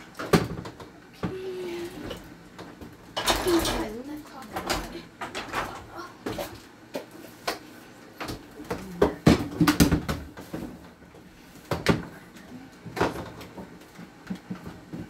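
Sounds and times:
kitchen items clattering: 0:01.9 - 0:07.6.

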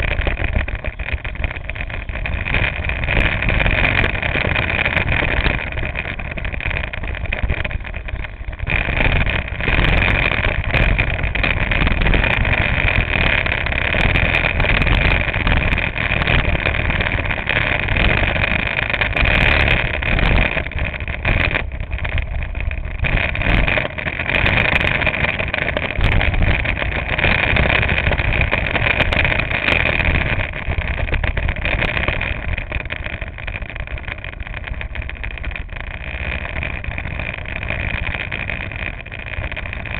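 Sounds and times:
go-kart engine running: 0:00.0 - 0:39.9
tyre noise: 0:00.0 - 0:39.9
wind noise: 0:00.0 - 0:39.9.

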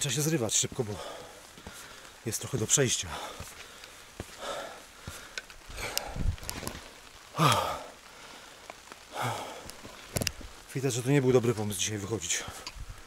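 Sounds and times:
man breathing hard: 0:01.0 - 0:02.2, 0:03.1 - 0:06.4, 0:07.3 - 0:10.1
short sighing voice: 0:07.4 - 0:08.0.

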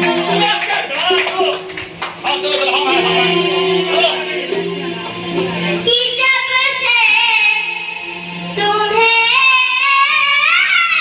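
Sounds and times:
musical accompaniment: 0:00.0 - 0:11.0
child singing into microphone: 0:05.8 - 0:08.0, 0:08.6 - 0:11.0.

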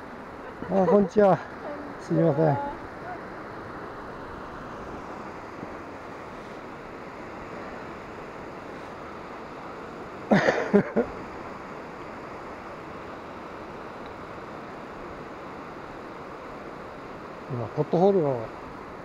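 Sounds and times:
steady rushing noise: 0:00.0 - 0:19.0.

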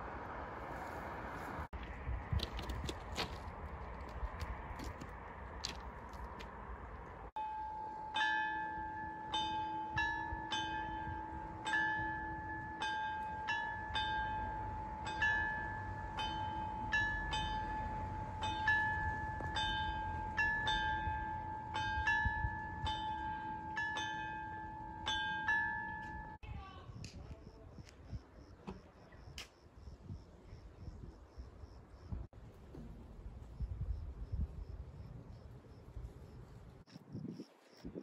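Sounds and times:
level crossing warning bell ringing: 0:07.4 - 0:26.4.

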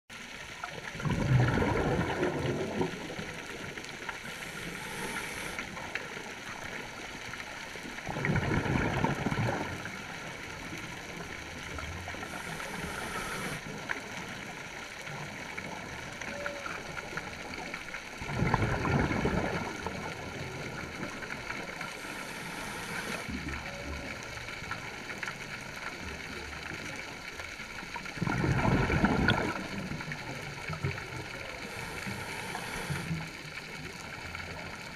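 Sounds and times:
exhaled bubbles underwater: 0:00.2 - 0:34.9
regulator inhalation hiss: 0:04.2 - 0:05.8, 0:12.2 - 0:13.7, 0:22.0 - 0:23.3, 0:31.7 - 0:33.3.

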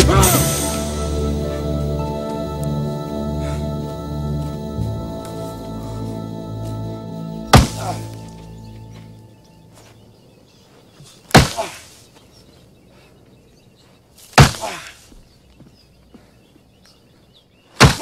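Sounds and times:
limb striking tree trunk: 0:07.5 - 0:08.1, 0:11.3 - 0:11.8, 0:14.3 - 0:14.9, 0:17.8 - 0:18.0.

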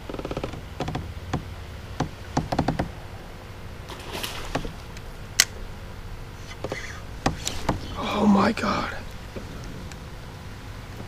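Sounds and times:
fishing gear knocks and clicks: 0:00.0 - 0:03.0.

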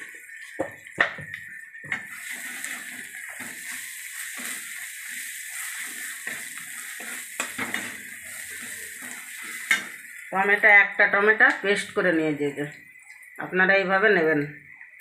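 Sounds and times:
spatula scraping and stirring: 0:00.0 - 0:10.2
hot oil sizzling: 0:00.0 - 0:15.0.

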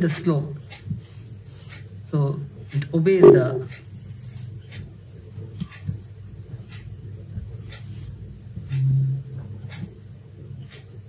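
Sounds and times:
steady low hum: 0:00.0 - 0:11.0
marker pen on whiteboard: 0:00.7 - 0:01.9, 0:03.1 - 0:04.9, 0:06.6 - 0:10.0.

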